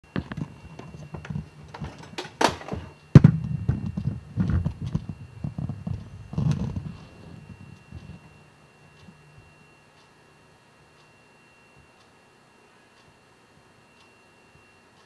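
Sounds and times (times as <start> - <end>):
handling knocks and rustling: 0.1 - 8.2
faint steady high tone: 0.1 - 15.0.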